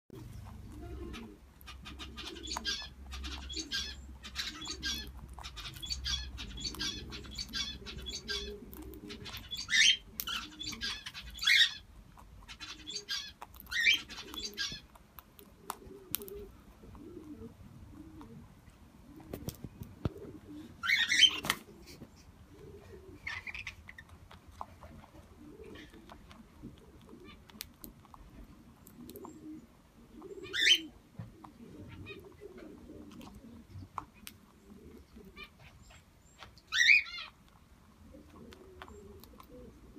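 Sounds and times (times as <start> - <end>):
low cooing calls: 0.2 - 11.8, 12.5 - 14.9, 15.6 - 24.1, 25.1 - 27.6, 28.8 - 36.0, 38.0 - 39.9.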